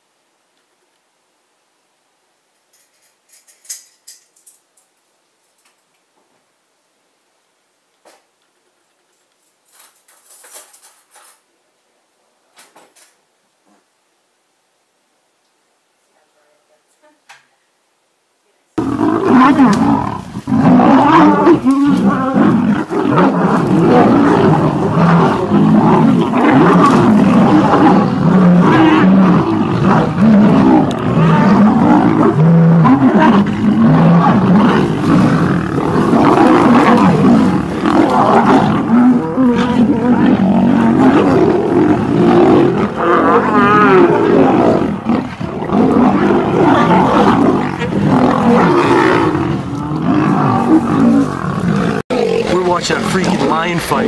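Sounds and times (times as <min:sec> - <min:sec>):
lions roaring: 0:18.8 - 0:54.0.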